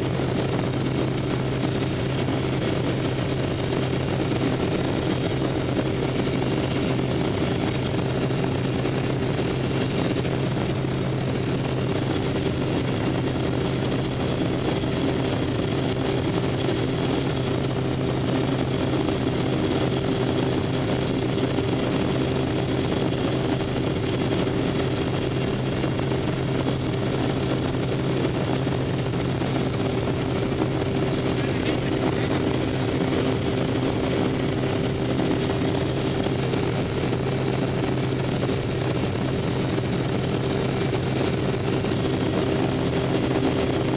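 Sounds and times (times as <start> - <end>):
plane engine droning: 0.0 - 43.9.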